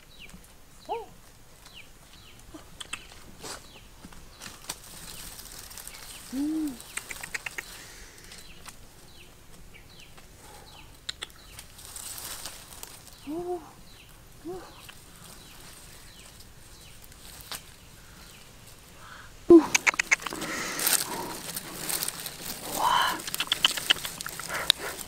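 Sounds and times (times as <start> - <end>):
dry grass rustling and crackling: 0.0 - 19.0, 19.8 - 25.0
small birds chirping: 0.0 - 25.0
short low calls: 6.2 - 8.4, 13.2 - 14.9, 19.0 - 22.0, 22.6 - 25.0.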